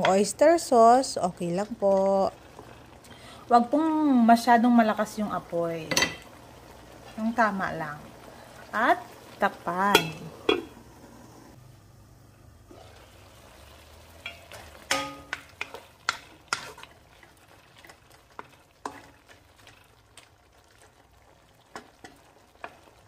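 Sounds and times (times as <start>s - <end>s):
squid sizzling in a wok: 0.0s - 23.0s
metal pot lid clanking: 5.9s - 6.3s, 9.9s - 10.8s, 14.2s - 16.8s
wooden spoon knocking pan: 14.2s - 16.7s.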